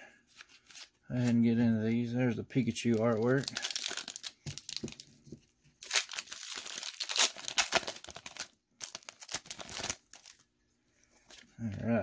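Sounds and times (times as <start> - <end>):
foil wrapper tearing and crinkling: 2.9 - 5.0, 5.8 - 10.4.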